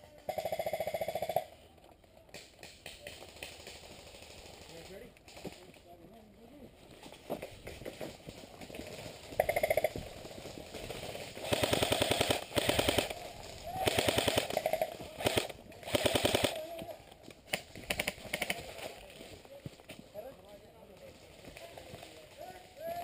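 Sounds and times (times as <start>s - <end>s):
airsoft guns firing bursts: 0.2s - 1.5s, 10.8s - 16.8s, 17.5s - 18.9s.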